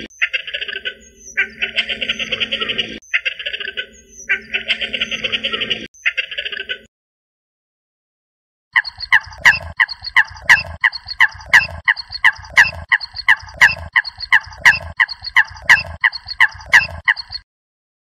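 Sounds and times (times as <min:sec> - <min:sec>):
coot calling: 0:08.8 - 0:17.4.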